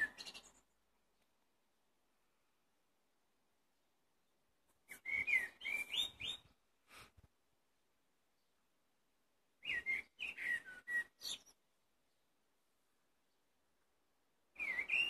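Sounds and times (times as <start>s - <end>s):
blackbird singing: 0.0s - 0.7s, 4.9s - 6.6s, 9.6s - 12.3s, 14.6s - 15.0s.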